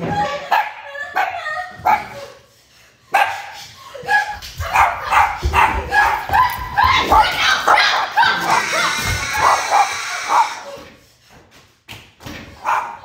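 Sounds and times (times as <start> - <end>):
dog barking and yipping: 4.1 - 10.8.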